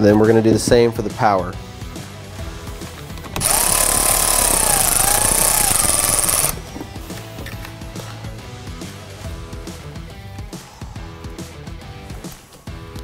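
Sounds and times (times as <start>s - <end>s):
cordless ratchet running: 3.4s - 6.6s.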